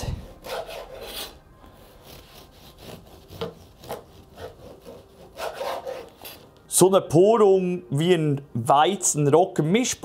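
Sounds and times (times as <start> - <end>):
bread knife sawing through loaf: 0.2 - 6.4.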